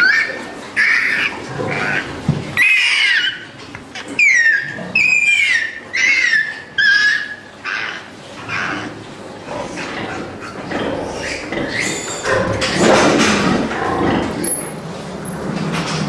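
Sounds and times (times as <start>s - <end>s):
piglet squealing: 0.0s - 9.0s.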